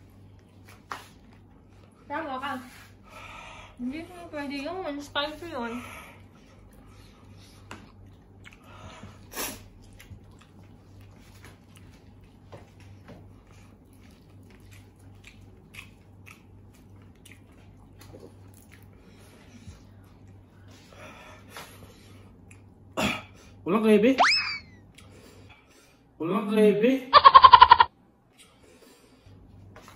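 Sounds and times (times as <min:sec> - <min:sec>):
man chewing food: 0:00.0 - 0:02.1, 0:06.2 - 0:23.5, 0:24.8 - 0:25.9.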